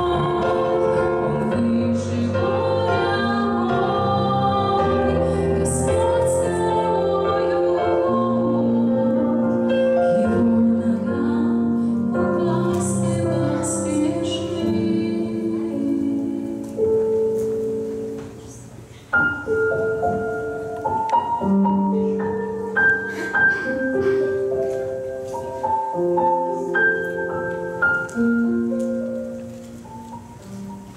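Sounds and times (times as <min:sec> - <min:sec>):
woman singing: 0:00.0 - 0:17.4
piano accompaniment: 0:00.0 - 0:30.9.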